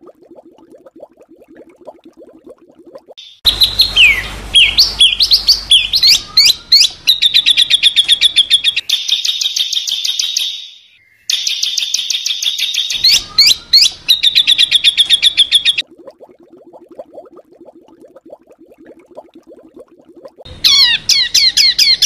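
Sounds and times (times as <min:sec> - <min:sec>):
songbird chirping harshly: 0:03.2 - 0:15.8, 0:20.6 - 0:22.0.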